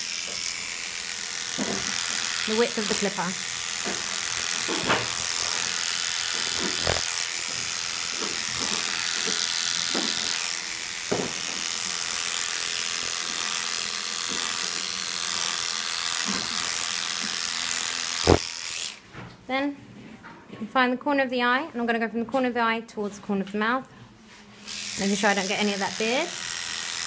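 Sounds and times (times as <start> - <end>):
electric clipper buzzing: 0.0 - 19.0, 24.6 - 27.0.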